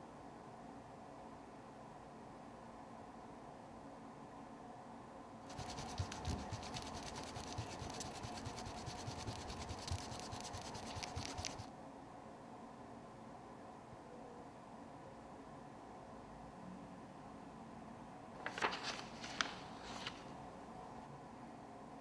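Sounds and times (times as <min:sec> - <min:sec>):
faint steady hiss: 0:00.0 - 0:22.0
pencil scratching on paper: 0:05.5 - 0:11.7.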